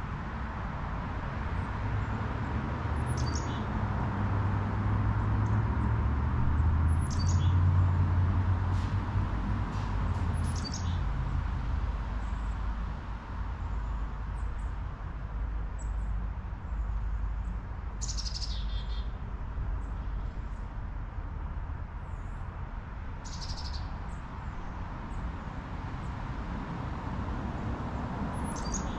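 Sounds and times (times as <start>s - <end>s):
bird chirping: 3.0s - 3.6s, 6.9s - 7.6s, 10.4s - 11.0s, 18.0s - 19.1s, 23.2s - 23.9s, 28.3s - 28.9s.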